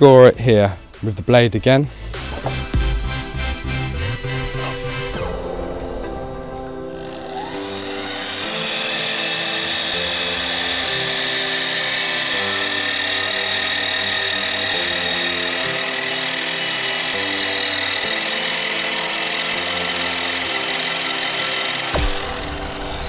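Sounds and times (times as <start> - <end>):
background music with low chords: 0.0 - 23.0
mitre saw whining: 1.9 - 23.0.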